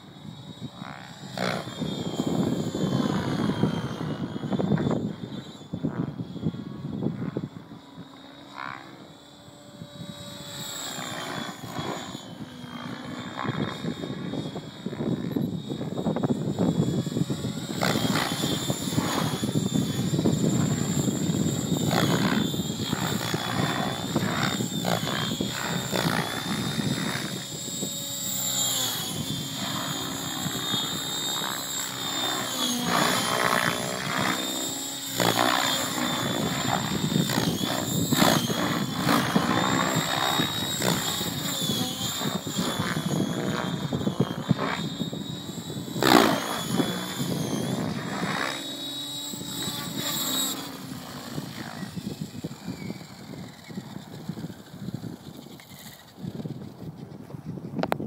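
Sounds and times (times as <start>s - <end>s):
model helicopter rotor whine: 0.0s - 58.0s.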